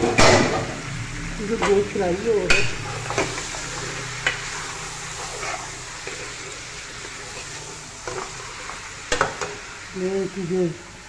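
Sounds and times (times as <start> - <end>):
meat sizzling in a pot: 0.0 - 11.0
metal spoon scraping a pot: 2.6 - 9.2.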